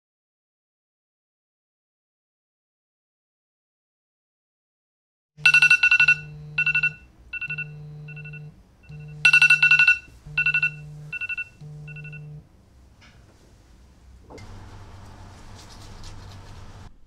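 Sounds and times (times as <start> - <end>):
phone alarm high beeps: 5.4 - 12.4
low buzz: 5.4 - 12.5, 14.4 - 15.5.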